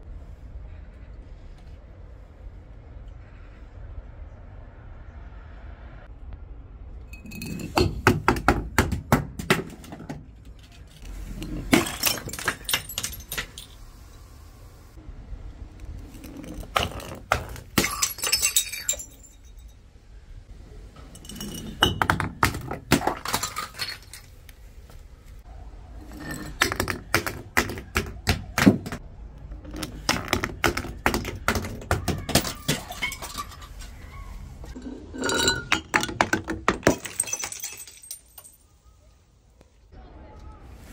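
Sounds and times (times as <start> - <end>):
bottles clattering down concrete steps: 7.2 - 13.8, 16.1 - 19.7, 21.0 - 24.4, 26.0 - 29.0, 29.6 - 34.0, 34.7 - 38.6
glass breaking: 11.5 - 13.8, 16.5 - 19.7, 21.2 - 24.3, 30.2 - 33.8, 35.2 - 38.6.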